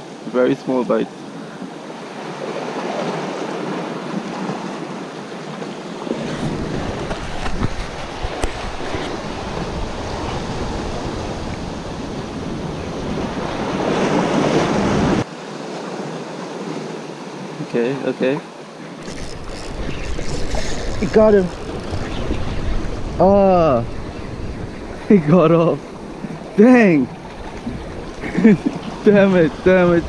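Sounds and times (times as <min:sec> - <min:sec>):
waves splashing against rocks: 0:02.1 - 0:17.5, 0:18.4 - 0:30.0
wind buffeting microphone: 0:06.0 - 0:15.3, 0:19.0 - 0:30.0.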